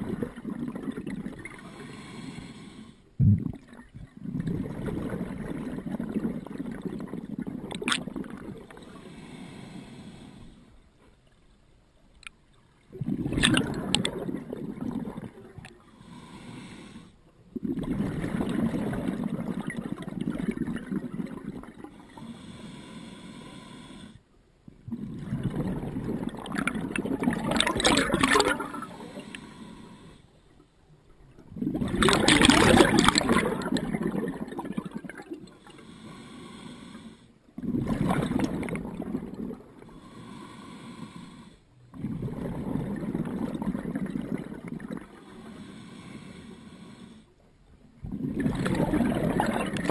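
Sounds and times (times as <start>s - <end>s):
exhaled bubbles gushing: 0.0s - 1.8s, 3.2s - 8.9s, 12.9s - 15.8s, 17.5s - 22.1s, 24.7s - 29.3s, 31.3s - 35.6s, 37.6s - 39.9s, 41.9s - 45.2s, 48.0s - 49.9s
regulator inhale hiss: 1.6s - 3.2s, 8.8s - 10.9s, 15.8s - 17.3s, 22.0s - 24.3s, 28.9s - 30.5s, 35.5s - 37.4s, 39.8s - 41.7s, 45.2s - 47.4s.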